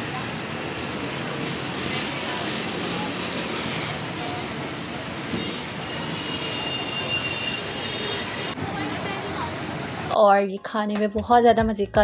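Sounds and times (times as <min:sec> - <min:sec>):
busy street-food din: 0:00.0 - 0:12.0.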